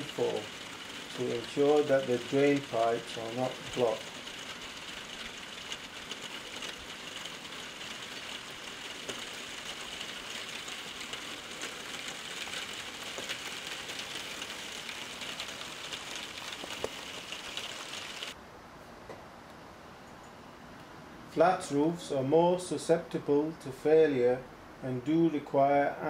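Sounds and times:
faint irregular ticks and clicks: 0:00.0 - 0:18.4
steady outdoor hiss: 0:00.0 - 0:26.0.

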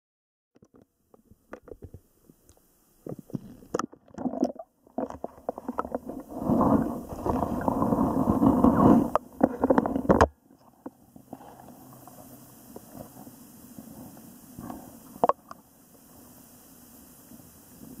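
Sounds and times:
underwater handling knocks and clicks: 0:00.6 - 0:02.0
underwater rumble of water movement: 0:03.0 - 0:18.0.

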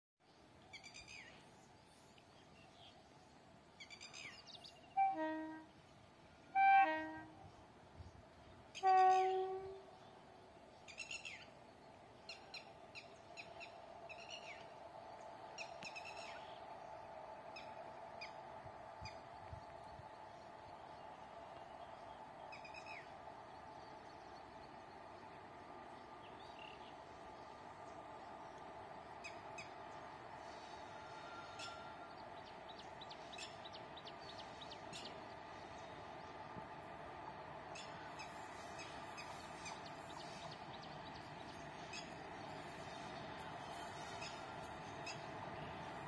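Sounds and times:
faint steady rumble: 0:09.4 - 0:46.0.

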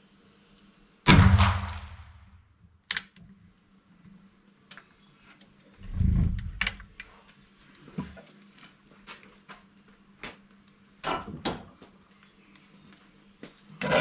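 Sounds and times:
rifle shot echoing: 0:01.1 - 0:02.3.

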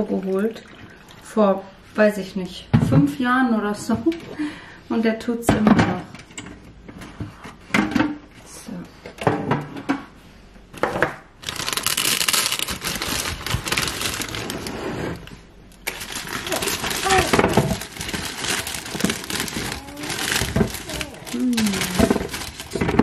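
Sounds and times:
potato bag crinkling: 0:11.4 - 0:14.8, 0:15.8 - 0:23.0
potatoes knocking on plastic: 0:15.9 - 0:23.0.

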